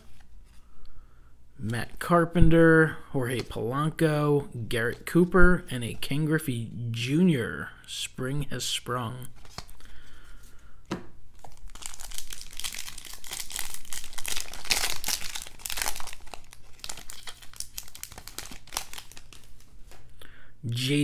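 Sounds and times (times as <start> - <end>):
plastic wrapper tearing and crinkling: 11.4 - 20.0.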